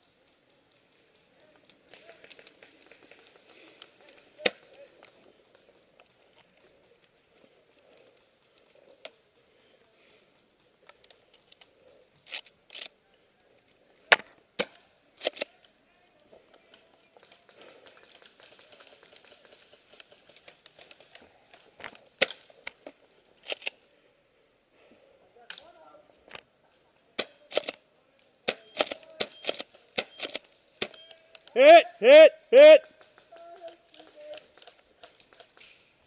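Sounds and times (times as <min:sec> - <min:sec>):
faint rustling: 0:00.0 - 0:14.2.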